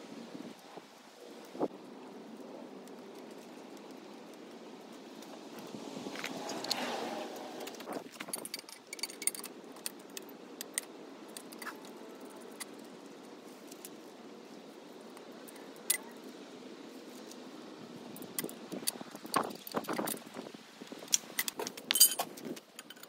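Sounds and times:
metal parts clinking: 7.7 - 10.0, 21.3 - 23.0.

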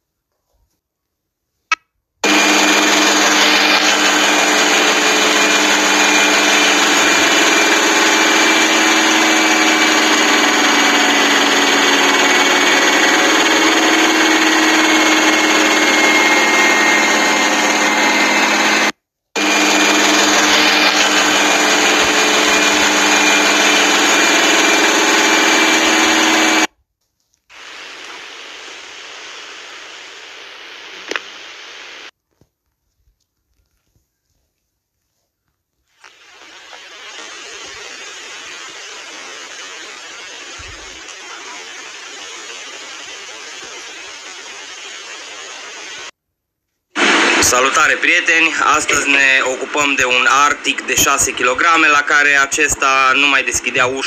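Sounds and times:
washing machine spinning: 2.2 - 26.7.

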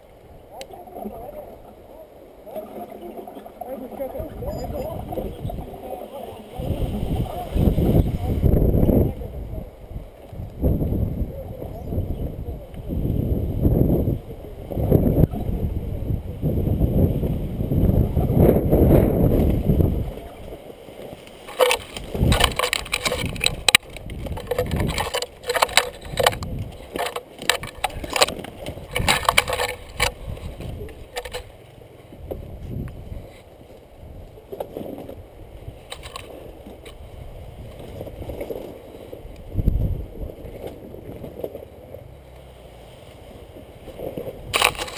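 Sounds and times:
low rumble of wind on microphone: 0.0 - 44.9
pine branches scraping and snapping: 21.3 - 31.5, 35.8 - 37.0, 44.0 - 44.9.

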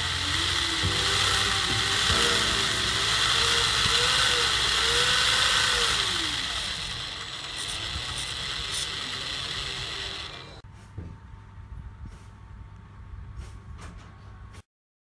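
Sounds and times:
small electric motor whirring: 0.0 - 10.6.

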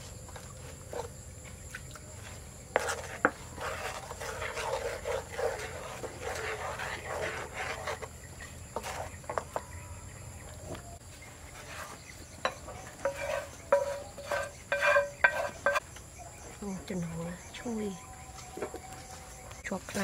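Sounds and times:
crickets chirping: 0.0 - 20.0
wooden spoon stirring in a pan: 2.2 - 9.8, 11.2 - 15.8
spoon scraping pan into bowl: 2.7 - 9.7, 11.6 - 15.8.

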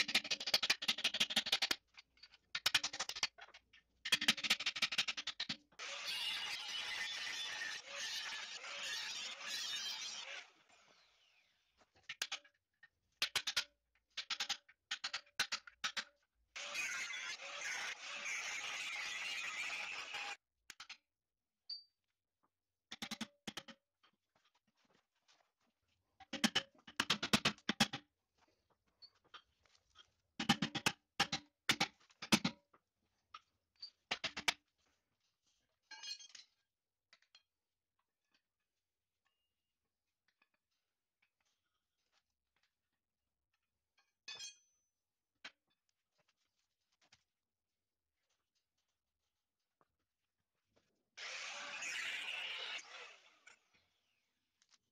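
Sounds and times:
angle grinder grinding: 5.8 - 11.0, 16.6 - 20.4, 51.2 - 53.6.

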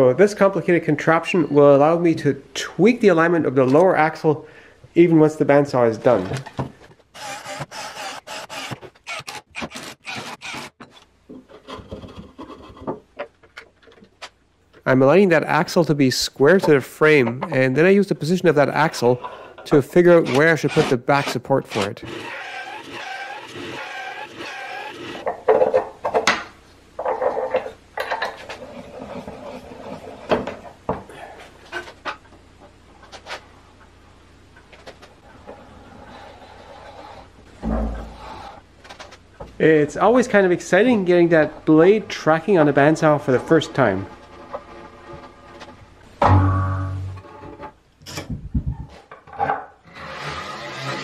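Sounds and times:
bandsaw cutting wood: 7.2 - 10.8, 20.1 - 25.2, 49.9 - 51.0
electric drill boring into wood: 7.2 - 10.8, 22.1 - 25.2
wooden knocks and clunks: 37.6 - 38.2
scraping of metal rod: 49.9 - 51.0.

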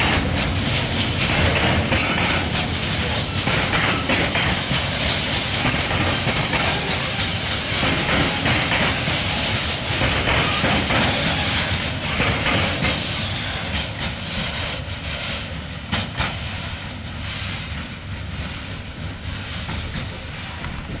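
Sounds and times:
train wagons rumbling: 0.0 - 21.0
wheels clattering on rails: 0.0 - 21.0.

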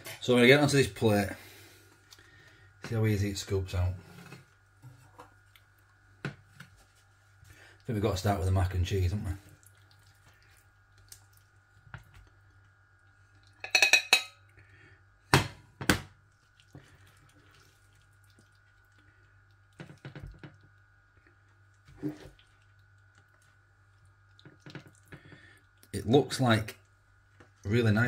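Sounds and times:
spoon tapping: 13.6 - 14.4.

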